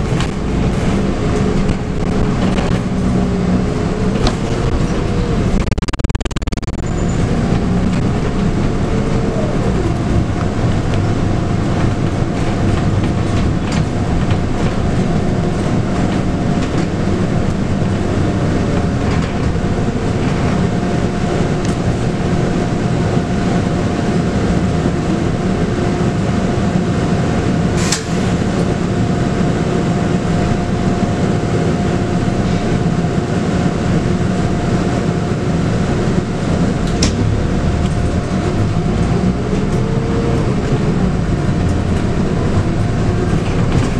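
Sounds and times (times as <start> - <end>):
bus diesel engine running: 0.0 - 43.9
road rumble: 0.0 - 43.9
high whine: 0.7 - 12.3.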